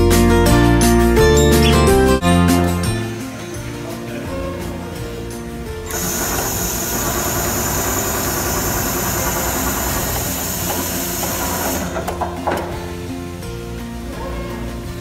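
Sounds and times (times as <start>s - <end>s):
loud high hiss: 5.9s - 12.1s
sewing machine running: 5.9s - 12.2s.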